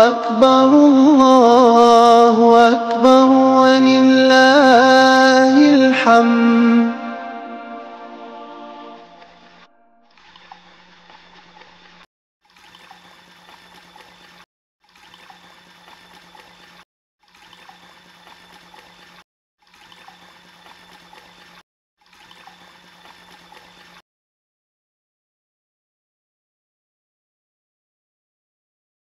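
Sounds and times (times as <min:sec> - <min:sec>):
motor hum: 0:09.0 - 0:24.0
water churning in washing machine: 0:10.1 - 0:24.0.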